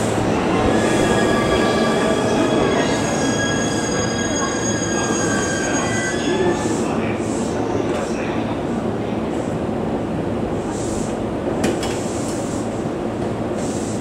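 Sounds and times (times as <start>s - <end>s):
train rolling rumble: 0.0s - 14.0s
train wheels squealing: 0.4s - 6.7s.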